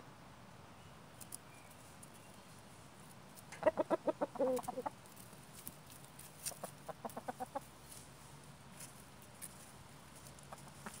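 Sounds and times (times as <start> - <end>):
chicken clucking: 3.5 - 5.2, 6.4 - 7.8, 10.4 - 11.0.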